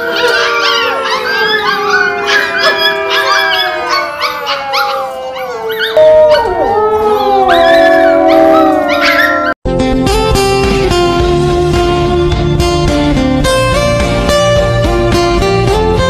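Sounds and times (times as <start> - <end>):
puppies howling: 0.0 - 9.6
background music: 9.0 - 16.0.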